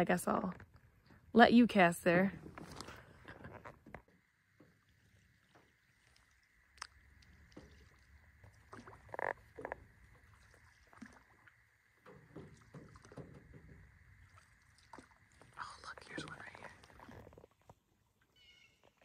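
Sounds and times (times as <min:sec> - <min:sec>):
knocks and rubs in a canoe: 0:02.3 - 0:19.0.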